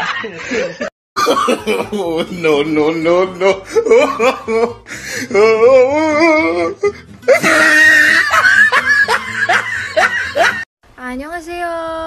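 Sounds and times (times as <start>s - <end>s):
hearty laugh: 0.0s - 2.8s, 7.3s - 10.7s
music: 1.2s - 10.6s.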